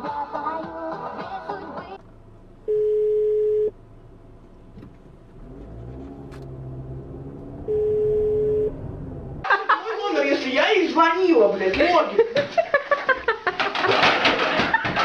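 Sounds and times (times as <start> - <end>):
car engine pulling away: 3.7 - 9.6
electronic beeps: 7.7 - 8.8.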